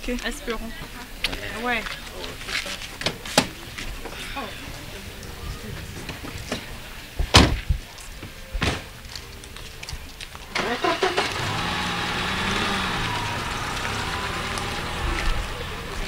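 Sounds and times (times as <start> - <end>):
car doors slamming: 7.3 - 7.7
car engine starting and running: 10.5 - 16.0.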